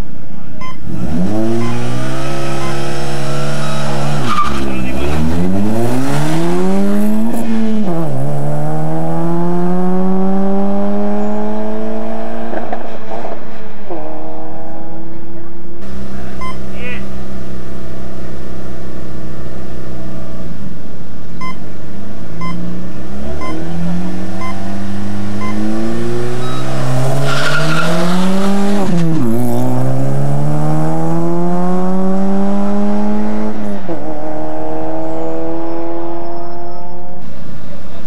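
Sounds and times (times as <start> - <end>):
rally car engine revving: 0.4 - 38.0
tyre squeal: 2.5 - 5.2, 26.4 - 29.3, 35.6 - 37.2
start clock short beeps: 16.4 - 16.6, 21.4 - 21.6, 22.4 - 22.7, 25.4 - 25.7, 26.4 - 26.9.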